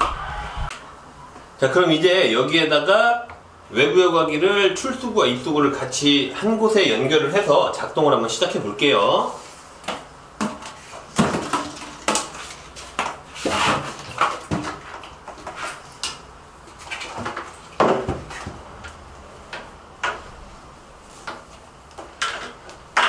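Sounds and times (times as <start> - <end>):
plastic hoses and fittings clattering: 10.4 - 18.6.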